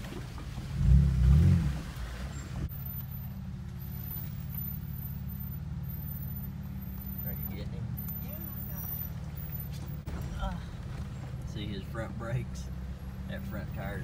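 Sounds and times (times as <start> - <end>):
engine revving: 0.0 - 14.0
engine running hum: 0.0 - 14.0.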